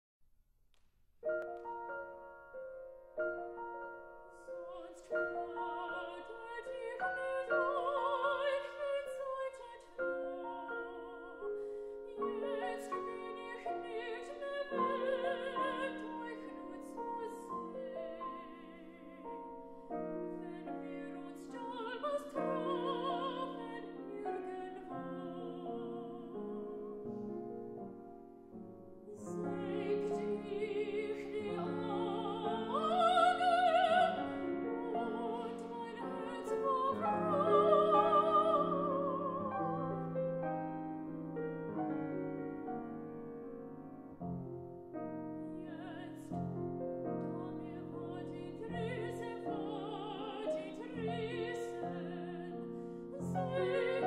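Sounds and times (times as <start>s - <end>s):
piano accompaniment: 1.2s - 54.0s
woman singing with vibrato: 4.6s - 11.4s, 12.1s - 19.4s, 20.2s - 26.9s, 29.1s - 40.0s, 45.6s - 46.5s, 47.2s - 54.0s.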